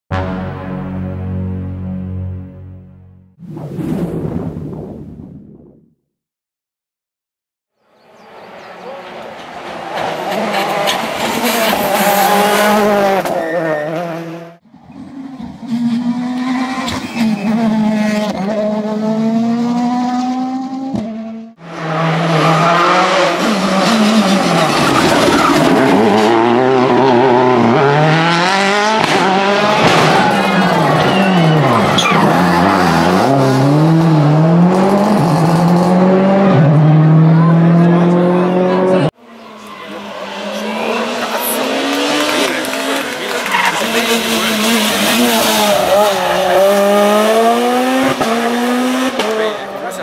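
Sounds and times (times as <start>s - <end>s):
rally car engines revving hard: 8.4s - 50.0s.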